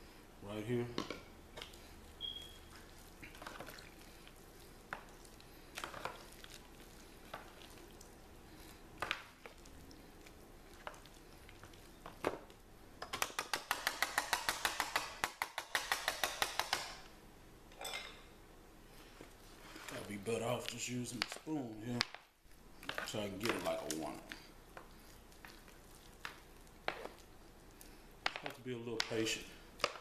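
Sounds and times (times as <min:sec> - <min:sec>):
rapid whisking: 0:01.6 - 0:12.4, 0:13.1 - 0:17.0, 0:22.8 - 0:27.8.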